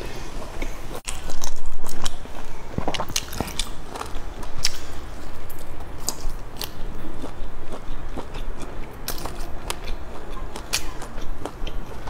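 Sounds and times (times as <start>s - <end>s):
biting and chewing: 1.0s - 12.0s.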